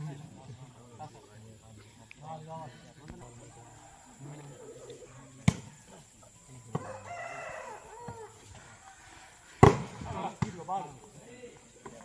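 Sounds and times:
rooster crowing: 6.7 - 9.6.

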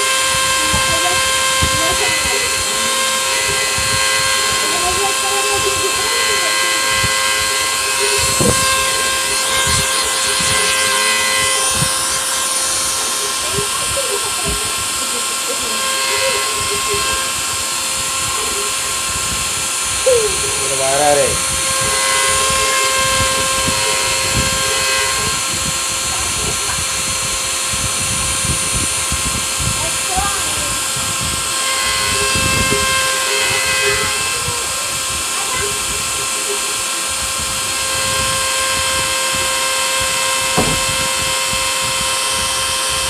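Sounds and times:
hiss of cutting: 0.0 - 43.0
router spindle whine: 0.0 - 43.0
dull low thumps: 40.5 - 41.3.

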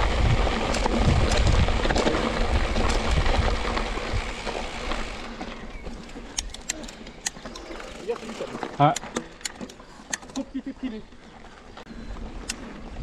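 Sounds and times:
wind rumble on microphone: 0.0 - 5.9
bike clicks and rattles: 0.0 - 13.0
bike tyre noise on trail: 0.0 - 13.0.

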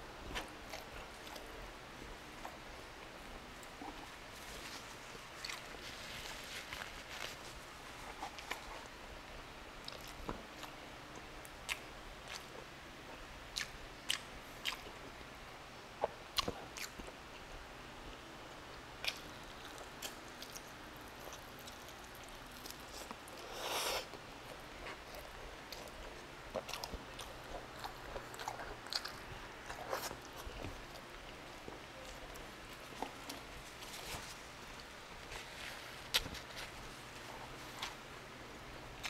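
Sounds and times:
wet chewing and licking sounds: 13.6 - 15.0, 19.0 - 38.0.

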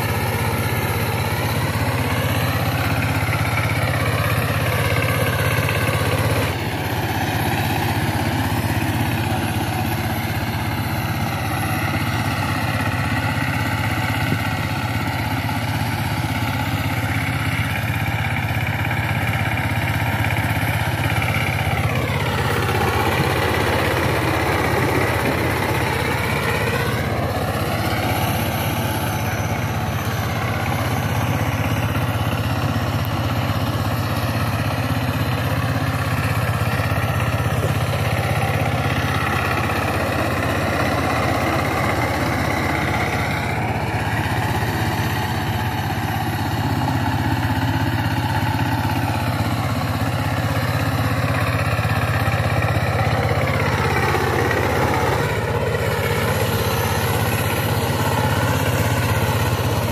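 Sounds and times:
diesel tiller engine running: 0.0 - 59.9
tiller churning soil: 0.0 - 59.9.

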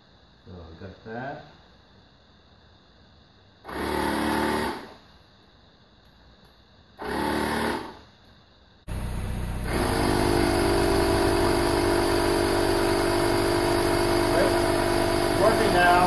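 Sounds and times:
tire inflator motor humming: 7.0 - 8.0, 8.9 - 16.0.

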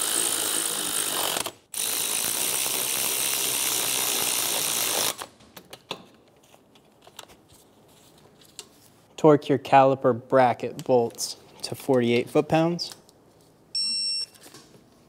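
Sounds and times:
power ratchet running: 0.0 - 5.2.

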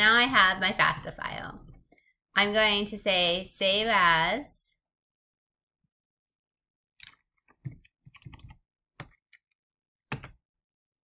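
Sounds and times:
computer keyboard typing: 7.0 - 9.5.

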